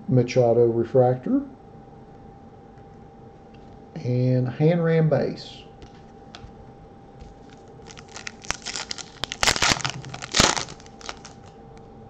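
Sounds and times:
foil wrapper tearing and crinkling: 7.8s - 11.5s.

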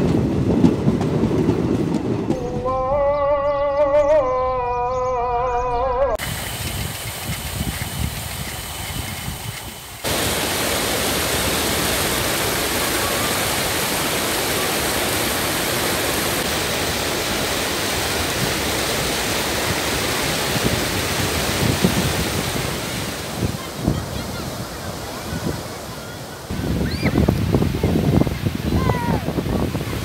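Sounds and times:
water rushing over a weir: 6.2s - 30.0s.

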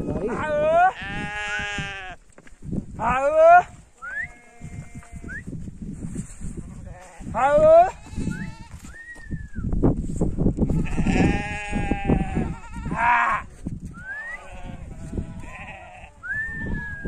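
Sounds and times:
sheep and goats bleating: 0.0s - 2.2s, 3.0s - 5.4s, 6.7s - 9.0s, 10.6s - 13.6s, 14.2s - 16.2s.

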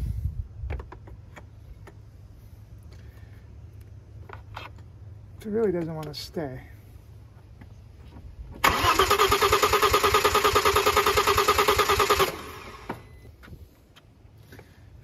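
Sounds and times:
starter motor cranking engine: 8.6s - 12.9s.

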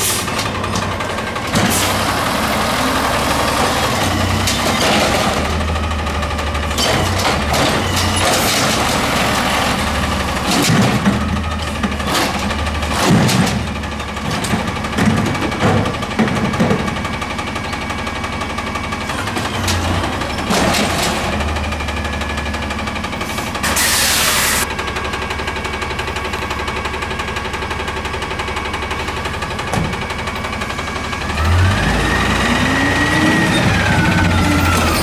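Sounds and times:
garbage truck engine running: 0.0s - 35.0s
cart banging against hopper: 10.4s - 17.0s.

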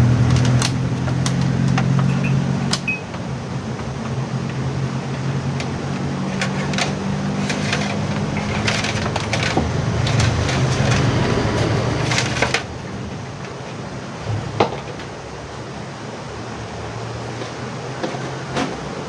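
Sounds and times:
plastic clicking and crackling: 6.4s - 12.7s.

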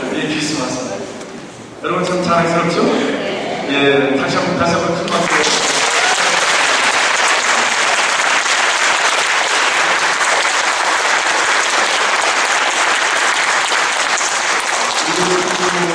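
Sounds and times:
congregation applauding: 5.1s - 15.9s.

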